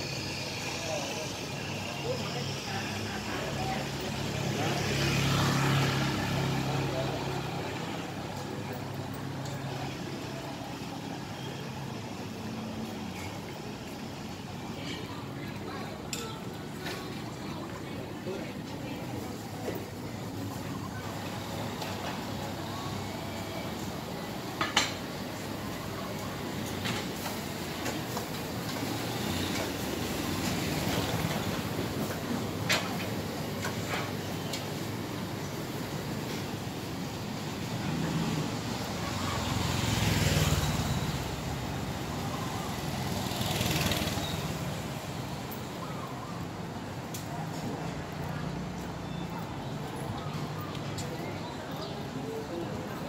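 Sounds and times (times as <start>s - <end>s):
street noise: 0.0s - 53.0s
motorbike passing: 0.4s - 11.3s, 25.2s - 45.8s
vehicle passing: 3.1s - 8.3s.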